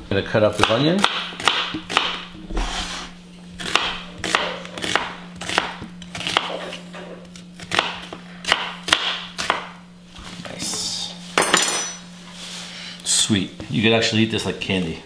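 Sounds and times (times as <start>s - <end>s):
knife slicing onion: 0.6s - 9.8s.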